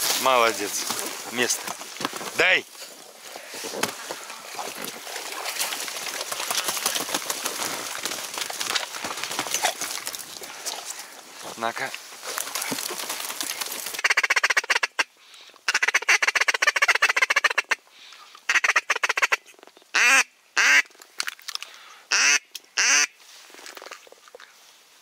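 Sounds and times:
duck quacking: 22.1 - 23.1.

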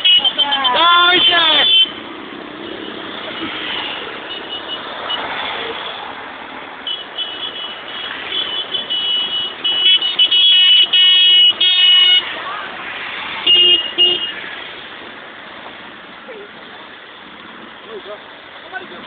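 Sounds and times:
vehicle horns honking: 0.0 - 2.1, 2.7 - 6.0, 6.8 - 12.3, 13.4 - 14.5
wind: 0.0 - 19.0.

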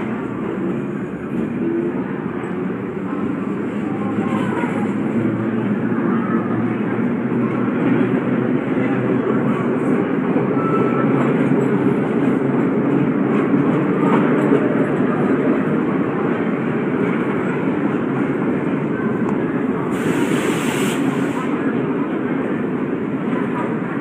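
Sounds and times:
train wheels rumbling on rail: 0.0 - 24.0
brief hiss: 19.9 - 21.5.

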